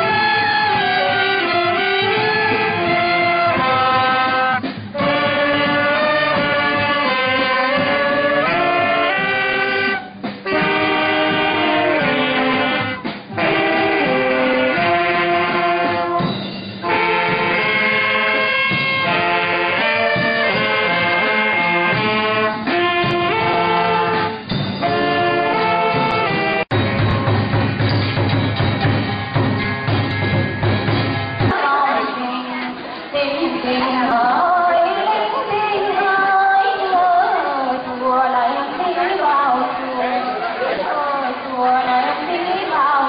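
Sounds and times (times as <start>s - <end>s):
marching brass band: 0.0s - 31.6s.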